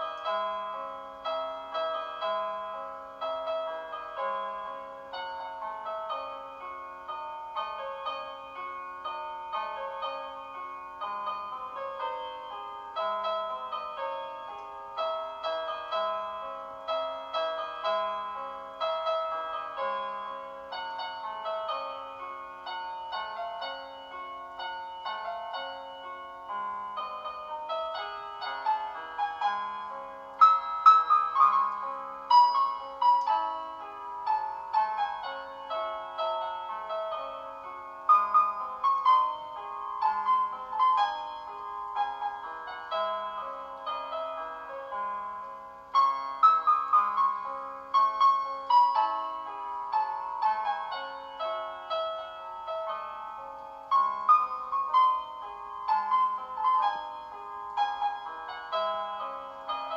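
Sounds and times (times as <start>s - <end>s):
piano music: 0.0s - 59.9s.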